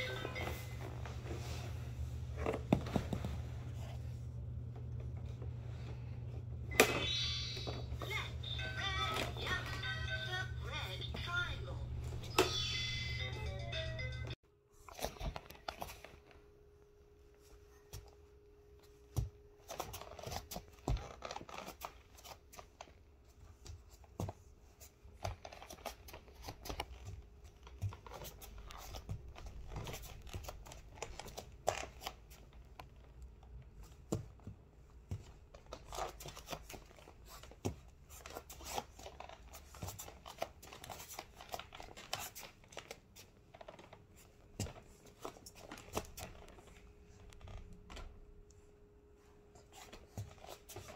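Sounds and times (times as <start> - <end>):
clothing rustling: 0.0 - 6.3.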